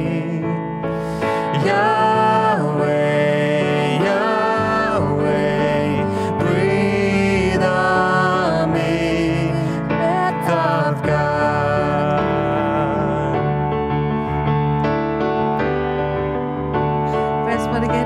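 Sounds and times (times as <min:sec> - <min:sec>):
instrumental accompaniment: 0:00.0 - 0:18.0
woman and man singing: 0:01.2 - 0:13.4.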